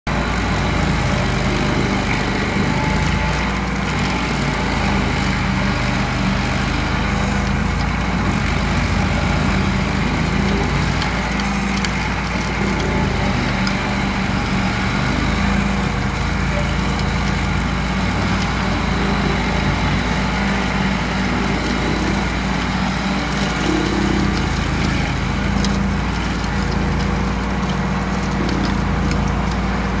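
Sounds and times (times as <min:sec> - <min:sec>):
engine humming: 0:00.1 - 0:30.0
grinder wheel grinding stump: 0:00.1 - 0:30.0.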